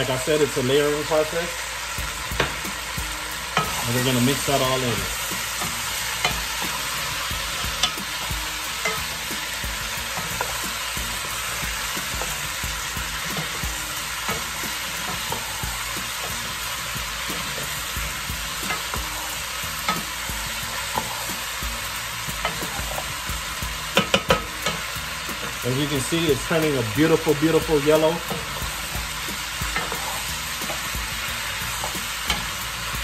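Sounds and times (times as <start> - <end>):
vegetables sizzling in a pot: 0.0 - 33.0
wooden spoon scraping a pot: 3.5 - 21.5, 28.0 - 33.0.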